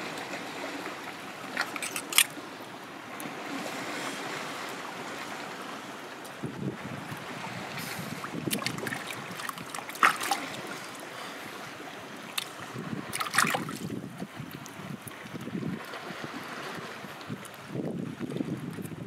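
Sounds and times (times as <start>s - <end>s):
moving water: 0.0s - 19.0s
wind: 0.0s - 19.0s
water splashing and dripping: 1.4s - 3.3s, 7.1s - 11.0s, 12.2s - 15.5s.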